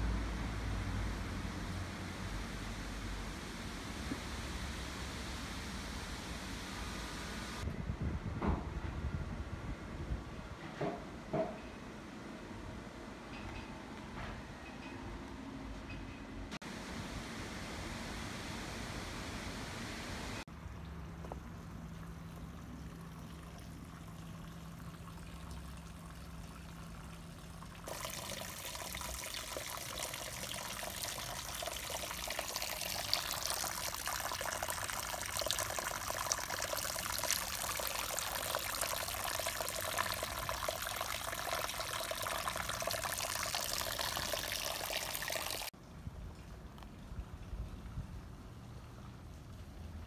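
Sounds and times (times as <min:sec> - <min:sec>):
water trickling onto stone: 0:21.1 - 0:45.7.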